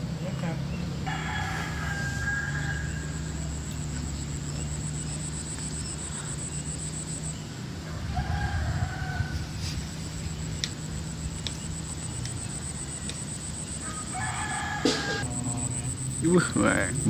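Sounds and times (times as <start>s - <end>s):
steady low hum: 0.0s - 17.0s
insect trill: 0.1s - 17.0s
rooster crowing: 1.0s - 3.7s, 7.8s - 9.7s, 12.6s - 15.9s.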